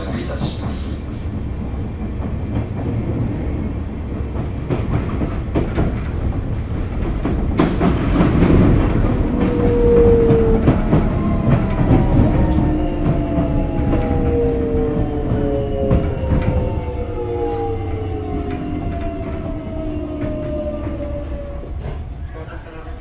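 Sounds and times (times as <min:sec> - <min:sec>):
train rumbling: 0:00.0 - 0:23.0
train motors whining: 0:07.5 - 0:22.2.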